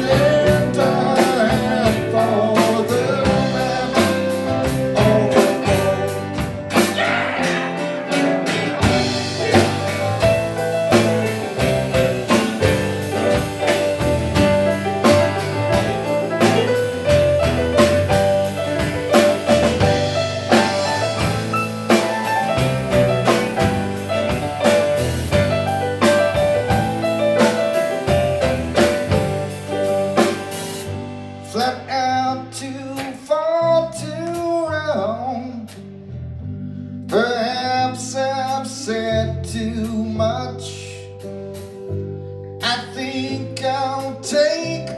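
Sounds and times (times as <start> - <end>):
man singing: 0.0 - 7.8, 9.2 - 10.4, 31.4 - 35.9, 37.1 - 41.2, 42.6 - 44.9
drum kit: 0.0 - 33.6, 41.1 - 42.0
live rock band playing: 0.0 - 44.9.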